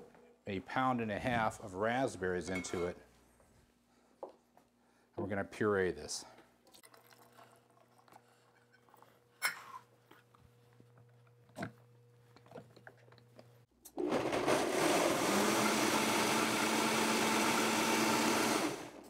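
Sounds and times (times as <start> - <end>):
blender running: 13.9 - 19.0.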